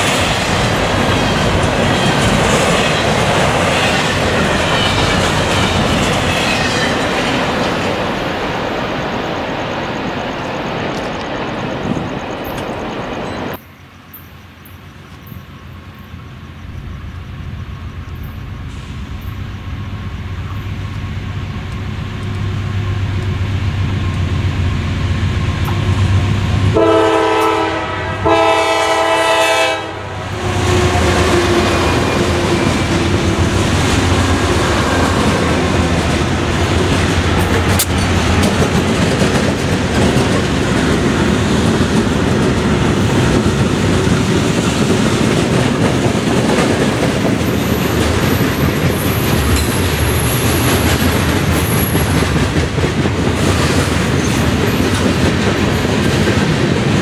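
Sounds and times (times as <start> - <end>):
diesel locomotive engine rumble: 0.0 - 57.0
train wheels on rails: 0.0 - 57.0
train horn blasts: 26.7 - 33.4.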